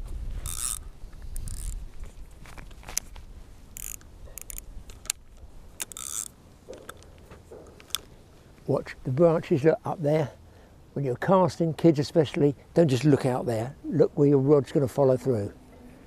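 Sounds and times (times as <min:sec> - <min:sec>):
microphone handling rustles and clicks: 0:00.0 - 0:06.0.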